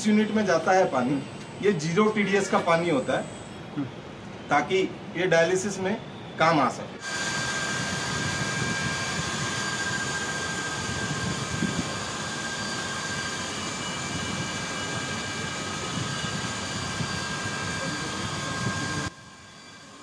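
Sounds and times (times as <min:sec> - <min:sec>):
electric water pump motors: 0:07.0 - 0:20.0.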